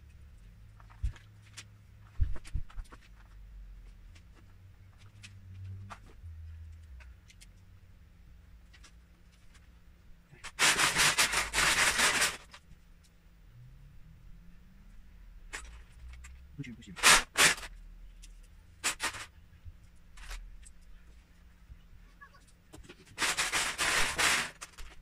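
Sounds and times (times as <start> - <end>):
plastic bricks clattering: 10.4 - 12.6, 18.8 - 19.3, 22.8 - 25.0.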